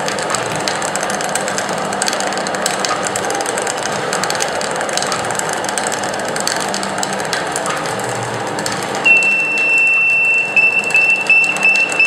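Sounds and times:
cooking machine mechanical noise: 0:00.0 - 0:12.0
buzzer beeping: 0:09.1 - 0:12.0.

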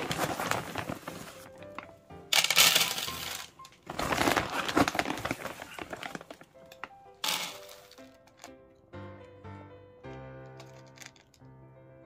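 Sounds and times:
plastic bag crinkling: 0:00.0 - 0:08.5
background music: 0:00.0 - 0:12.0.

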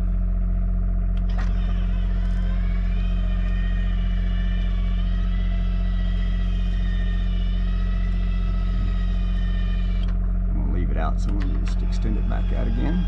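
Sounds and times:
awning motor whining: 0:00.0 - 0:13.0
generator humming: 0:00.0 - 0:13.0.

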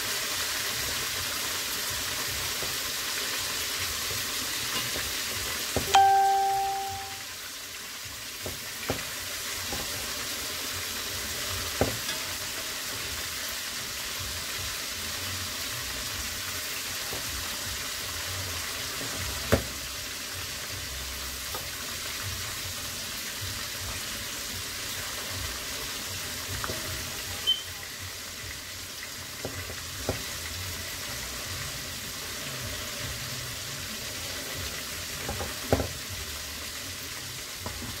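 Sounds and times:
chicken sizzling in hot oil: 0:00.0 - 0:38.0
metal utensils clinking on pot: 0:04.7 - 0:05.1, 0:11.9 - 0:12.7.

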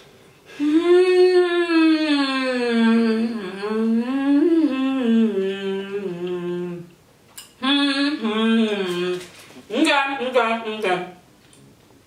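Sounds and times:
woman humming: 0:00.5 - 0:07.0, 0:07.6 - 0:09.3.

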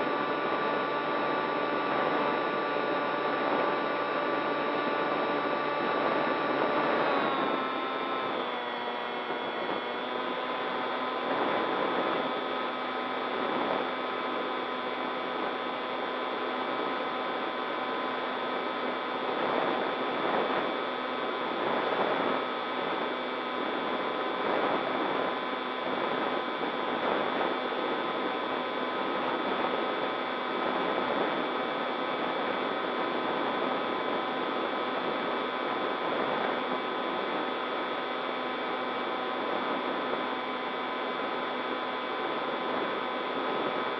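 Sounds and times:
model plane motor whine: 0:00.0 - 0:25.7.

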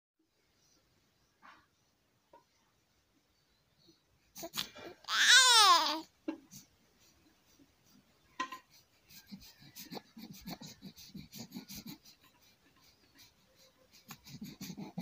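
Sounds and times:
baby breathing quickly: 0:08.6 - 0:15.0.

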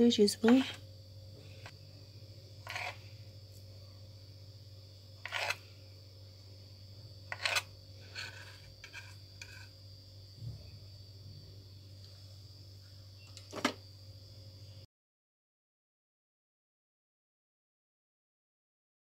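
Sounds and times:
faint steady hum: 0:00.0 - 0:14.9
knife slicing on plastic board: 0:05.2 - 0:05.6.

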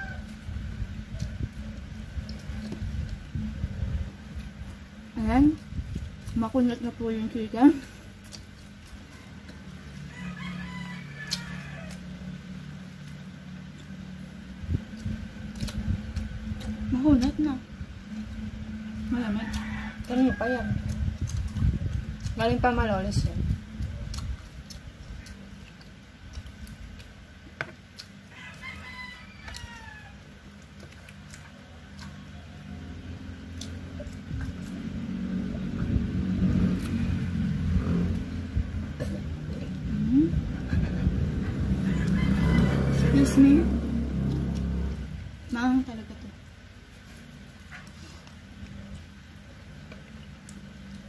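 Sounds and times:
rooster crowing: 0:00.0 - 0:00.5, 0:09.0 - 0:12.4, 0:19.2 - 0:20.8, 0:28.3 - 0:30.4, 0:41.5 - 0:45.2
steady low rumble: 0:00.0 - 0:28.4, 0:29.2 - 0:51.0
low hum: 0:00.0 - 0:51.0.

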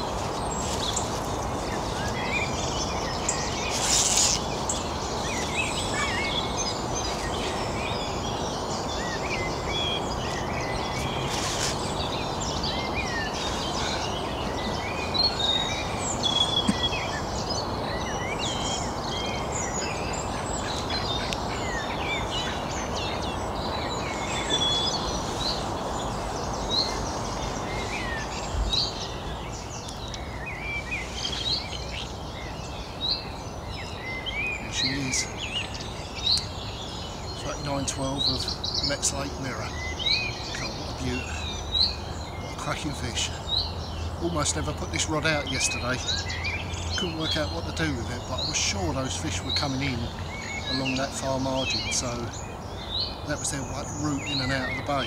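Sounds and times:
small birds chirping: 0:00.0 - 0:55.0
rustling: 0:03.7 - 0:04.5, 0:11.3 - 0:11.9.

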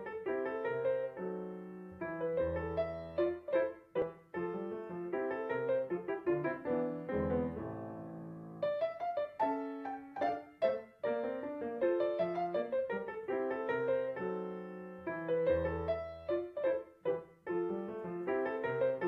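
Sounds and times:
piano music: 0:00.0 - 0:19.0.

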